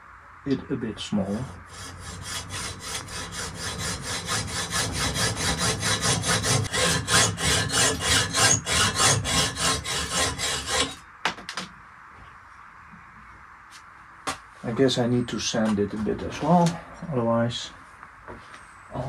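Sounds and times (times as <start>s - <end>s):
hacksaw cutting metal: 1.3s - 11.0s.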